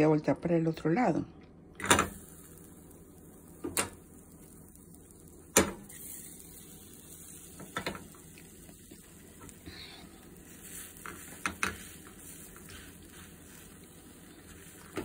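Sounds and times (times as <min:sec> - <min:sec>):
faint steady hiss: 0:01.4 - 0:15.0
frying pan knocking on metal grates: 0:07.6 - 0:08.0, 0:11.0 - 0:12.0.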